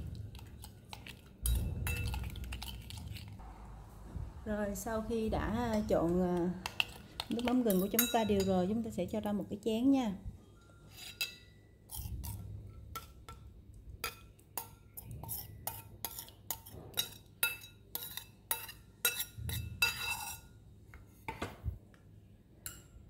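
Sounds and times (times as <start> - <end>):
metal spoon clinking on steel bowl: 0.3 - 3.3, 6.6 - 8.7, 10.8 - 20.5, 22.6 - 23.0.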